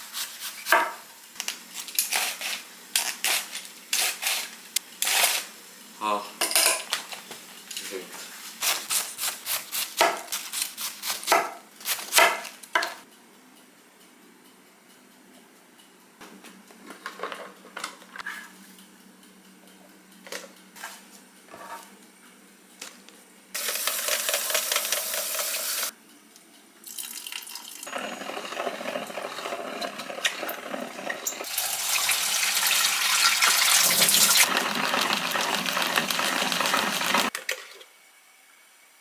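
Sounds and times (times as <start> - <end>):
salad spinner churning: 27.8 - 37.3.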